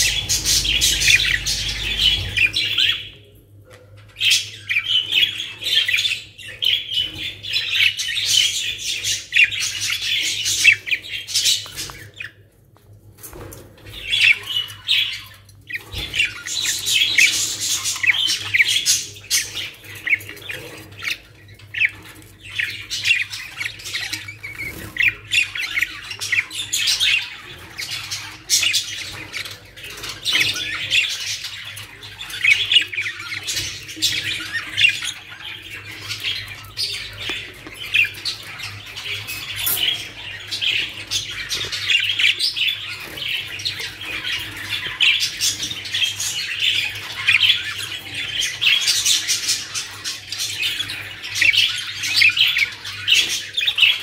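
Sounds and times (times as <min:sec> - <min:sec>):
budgerigars chattering: 0:00.0 - 0:03.2.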